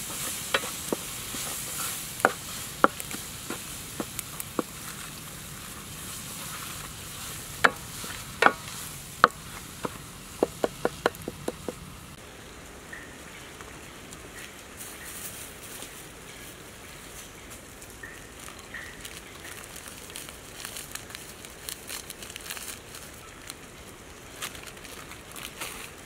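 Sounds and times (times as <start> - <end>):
paste sizzling in a pan: 0.0 - 11.8
wooden spatula scraping a pan: 0.0 - 11.8.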